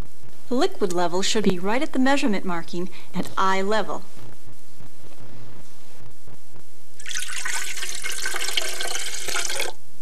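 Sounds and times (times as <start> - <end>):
water pouring into metal pan: 7.0 - 9.8.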